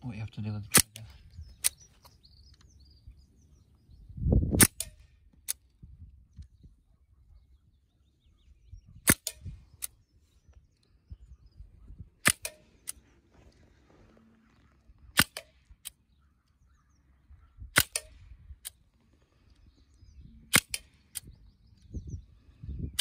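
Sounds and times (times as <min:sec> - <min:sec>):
air rifle shots: 0:04.5 - 0:05.6, 0:09.0 - 0:10.0, 0:12.2 - 0:13.0, 0:15.1 - 0:16.0, 0:17.7 - 0:18.7, 0:20.5 - 0:21.3.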